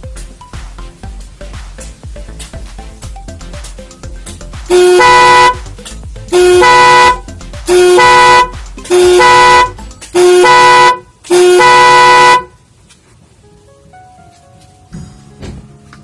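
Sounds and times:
car horn blasts: 0:04.7 - 0:05.7, 0:06.3 - 0:12.6.

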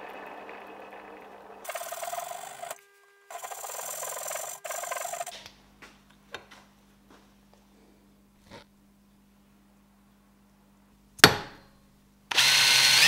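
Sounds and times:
file rasping on copper pipe: 0:01.7 - 0:05.3.

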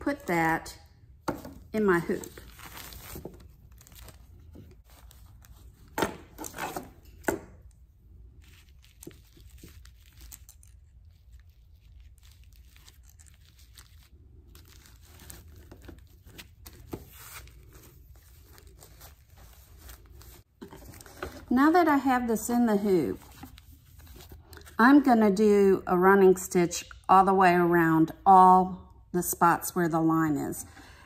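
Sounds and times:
paper crinkling and rustling: 0:02.1 - 0:07.2, 0:08.3 - 0:21.5.

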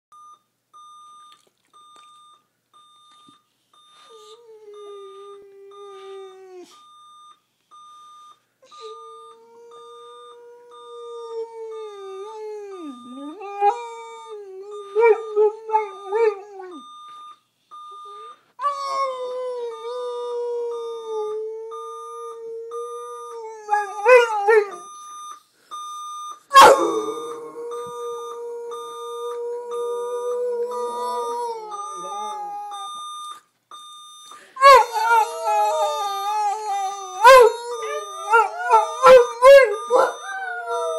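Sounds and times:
dog howling and yipping: 0:26.5 - 0:27.9, 0:34.6 - 0:40.9
electronic alarm beeping rapidly: 0:30.9 - 0:40.9.

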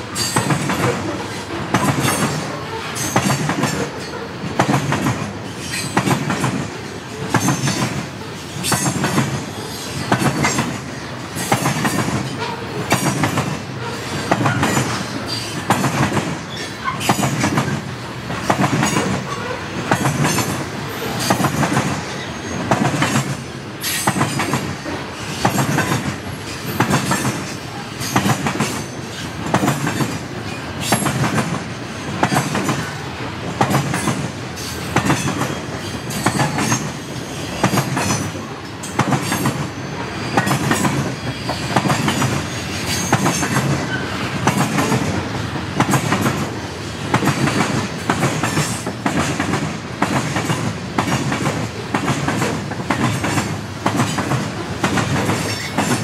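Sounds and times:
freight train wheels clacking: 0:00.0 - 0:56.0.

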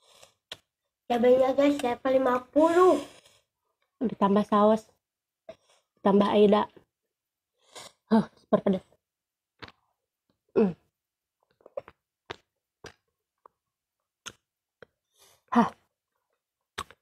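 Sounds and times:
wet chewing mouth clicks: 0:00.0 - 0:00.7, 0:11.4 - 0:13.6, 0:14.2 - 0:15.0, 0:16.7 - 0:17.0.

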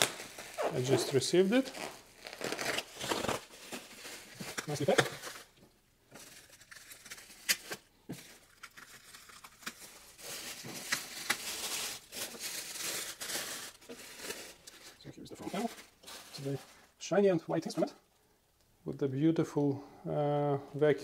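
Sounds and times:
plastic wrap ripping: 0:00.0 - 0:05.5, 0:06.2 - 0:16.8
plastic wrap crinkling: 0:00.0 - 0:17.0.

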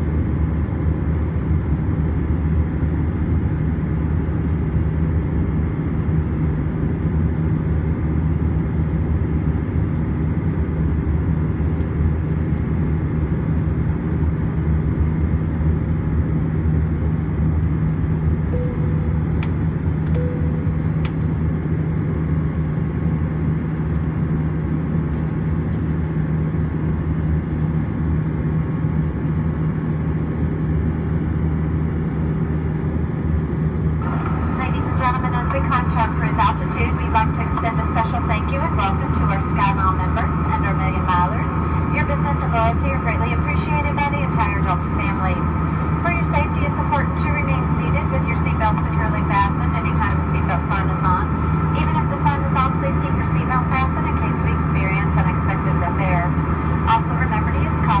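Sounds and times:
airplane cabin engine drone: 0:00.0 - 0:58.0.

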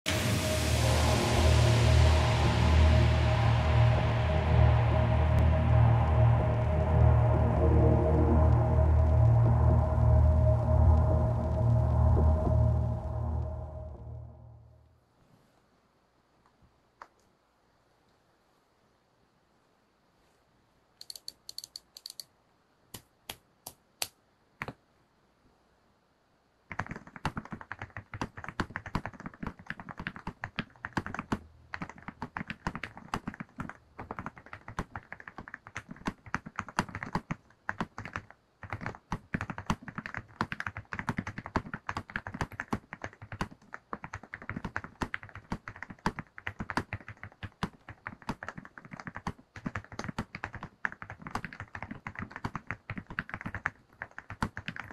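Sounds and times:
sharp clicks: 0:21.0 - 0:22.3
fast mechanical keyboard typing: 0:26.7 - 0:54.9.

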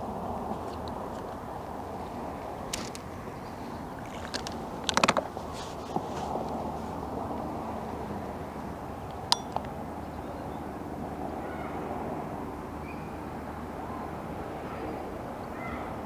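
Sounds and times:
riverbank background noise: 0:00.0 - 0:16.0
faint bird calls: 0:14.7 - 0:15.9.

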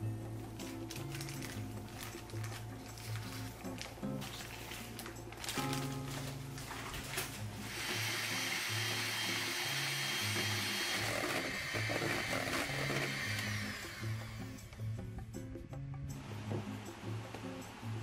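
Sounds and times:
background music: 0:00.0 - 0:18.0
electric hand mixer whirring: 0:07.6 - 0:14.9.

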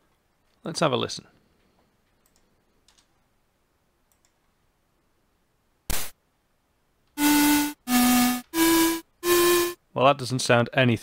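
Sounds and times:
computer mouse clicks: 0:02.1 - 0:03.1, 0:04.1 - 0:04.4
square-wave synth tone: 0:07.2 - 0:09.8.

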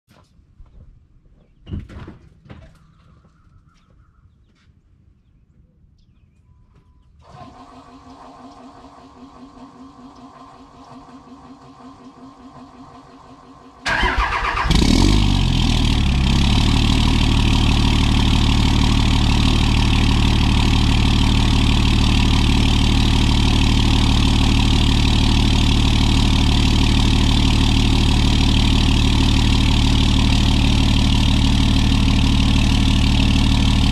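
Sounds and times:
starter motor cranking: 0:07.2 - 0:12.8, 0:13.8 - 0:15.3
diesel engine idling: 0:07.6 - 0:33.9.

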